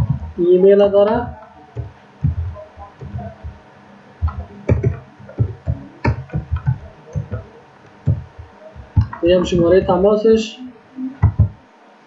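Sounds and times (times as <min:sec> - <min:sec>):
keyboard typing: 0:01.1 - 0:03.6, 0:04.2 - 0:10.1, 0:11.2 - 0:11.6.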